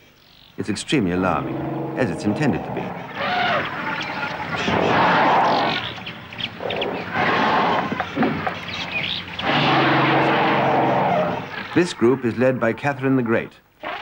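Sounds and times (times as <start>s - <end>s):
elephants trumpeting and screaming: 1.2s - 11.8s.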